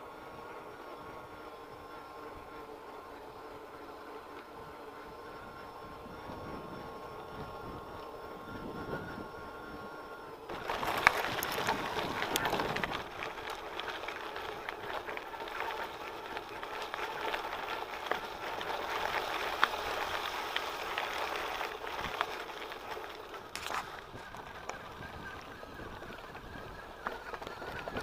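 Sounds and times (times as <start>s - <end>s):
bike rattling: 0.0s - 28.0s
faint steady whine: 0.0s - 28.0s
bike tyres crunching on gravel: 10.4s - 28.0s.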